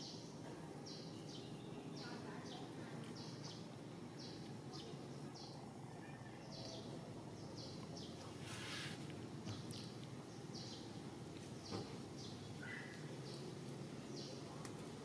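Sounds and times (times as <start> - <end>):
outdoor background noise: 0.0 - 15.0
brief hiss: 8.4 - 9.0.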